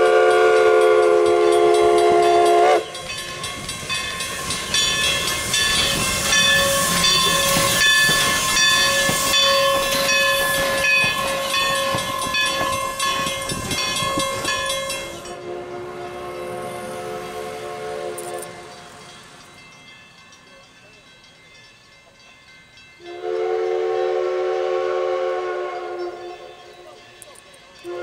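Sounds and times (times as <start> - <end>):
steam hissing: 0.0 - 19.9
steam locomotive rolling past: 0.0 - 28.0.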